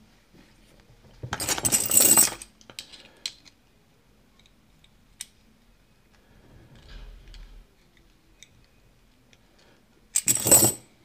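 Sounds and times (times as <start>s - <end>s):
metal lock parts clinking: 1.3s - 3.6s, 10.1s - 10.8s.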